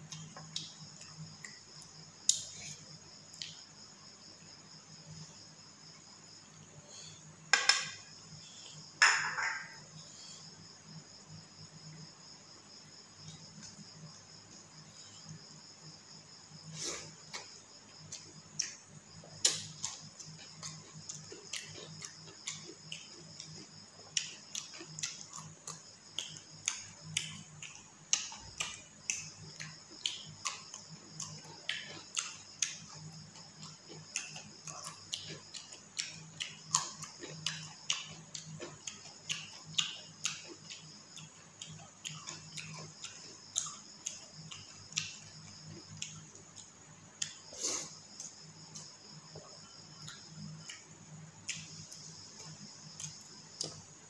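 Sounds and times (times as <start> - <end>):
chewing and lip-smacking: 17.3 - 47.4.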